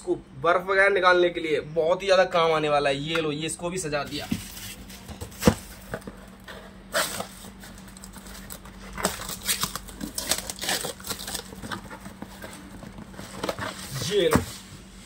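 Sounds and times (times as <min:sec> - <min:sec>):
cardboard flaps rustling: 0:04.1 - 0:14.8
packing tape peeled and torn: 0:06.9 - 0:14.3.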